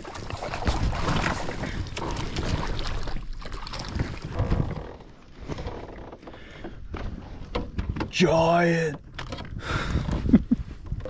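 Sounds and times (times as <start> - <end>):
fish splashing in water: 0.0 - 4.4.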